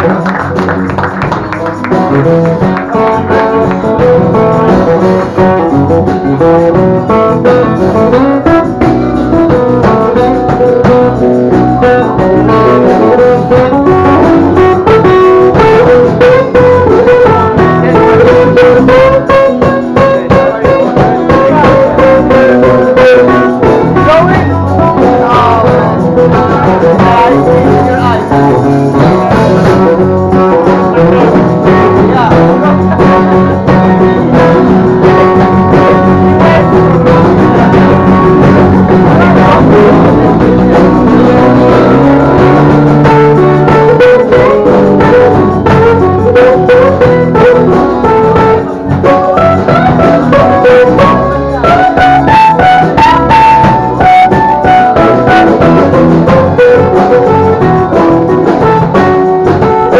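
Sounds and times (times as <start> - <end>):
drum kit: 0.0 - 59.9
electric bass: 0.0 - 59.9
harmonica lead line: 0.0 - 59.9
strummed acoustic guitars: 0.0 - 59.9.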